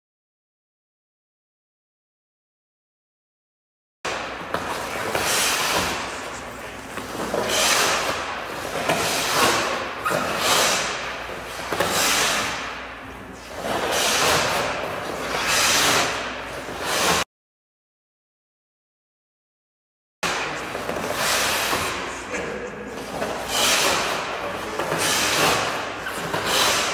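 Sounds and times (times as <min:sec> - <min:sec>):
skate blades scraping ice: 0:04.1 - 0:17.2, 0:20.3 - 0:26.9.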